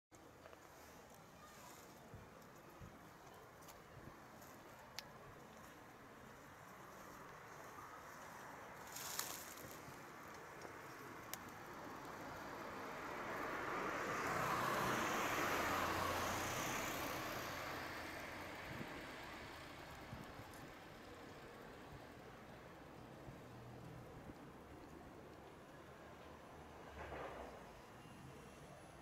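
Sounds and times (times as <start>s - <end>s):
vehicle passing by: 11.7s - 20.0s.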